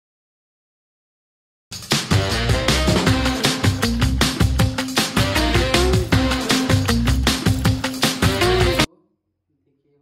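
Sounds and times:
background music with steady beat: 0:01.7 - 0:09.0.

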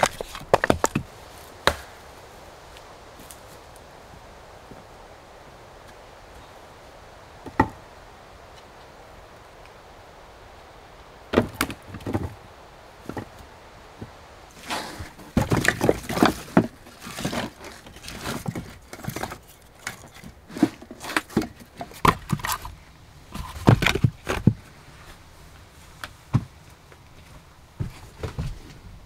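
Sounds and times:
firewood logs clattering: 0:00.0 - 0:02.1, 0:07.4 - 0:07.9, 0:11.3 - 0:25.2, 0:25.9 - 0:28.8.

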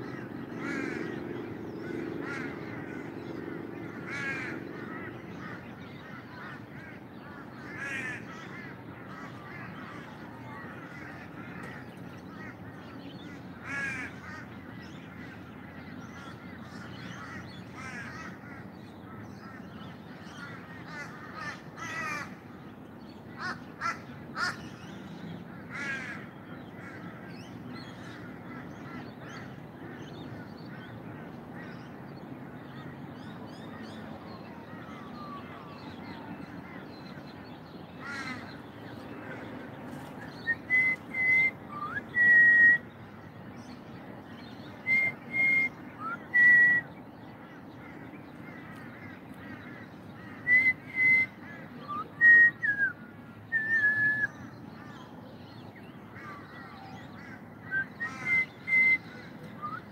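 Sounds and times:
crows cawing: 0:00.0 - 0:22.5, 0:23.3 - 0:25.0, 0:25.6 - 0:31.9, 0:38.0 - 0:42.8, 0:56.2 - 0:59.9
birds calling: 0:00.0 - 0:59.9.

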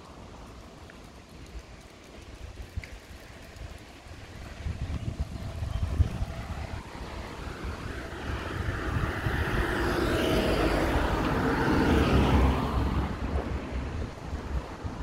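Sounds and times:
wind rumbling on microphone: 0:00.0 - 0:15.0
vehicle passing by: 0:05.2 - 0:15.0.

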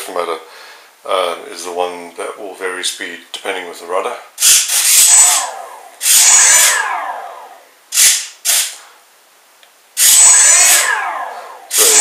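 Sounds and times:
electric motor propeller whine: 0:04.9 - 0:07.7, 0:10.0 - 0:12.0.

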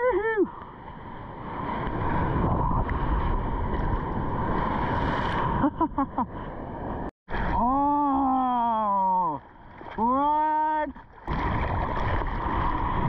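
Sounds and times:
wave breaking: 0:00.8 - 0:07.8, 0:10.9 - 0:13.0
water churning: 0:07.3 - 0:13.0.

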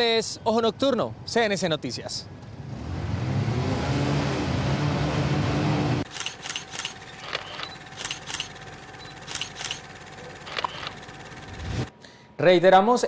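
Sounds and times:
motorcycle engines revving: 0:02.5 - 0:08.5.

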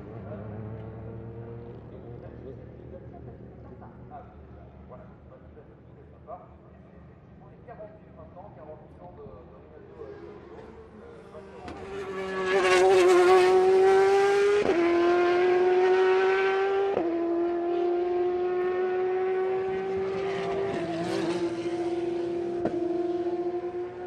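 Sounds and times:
race car engine accelerating: 0:10.0 - 0:24.0.

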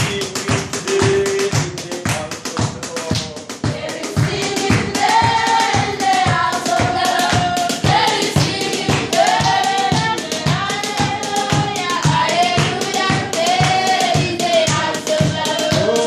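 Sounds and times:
hands clapping a beat: 0:00.0 - 0:16.0
group singing worship song: 0:03.5 - 0:16.0.

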